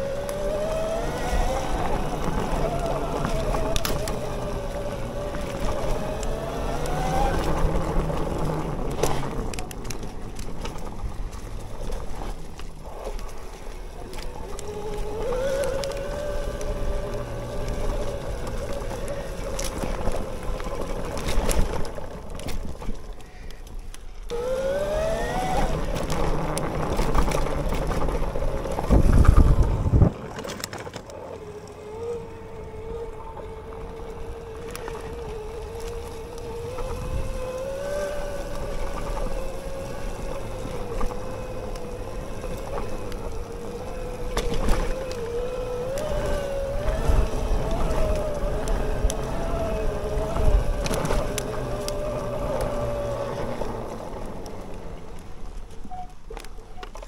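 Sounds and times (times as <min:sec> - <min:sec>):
electric motor whining: 0:14.0 - 0:22.1, 0:24.2 - 0:30.0, 0:31.4 - 0:55.4.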